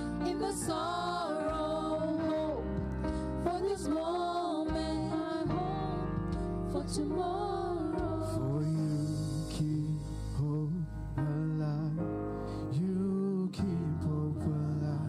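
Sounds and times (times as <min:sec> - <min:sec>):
worship band playing: 0:00.0 - 0:10.7
person singing: 0:00.0 - 0:12.1
bass line: 0:00.0 - 0:15.0
keyboard chords: 0:00.0 - 0:15.0.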